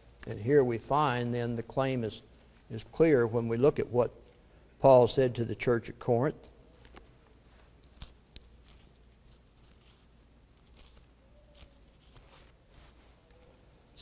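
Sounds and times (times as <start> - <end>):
low room hum: 0.0 - 14.0
pages rustling and turning: 6.8 - 14.0.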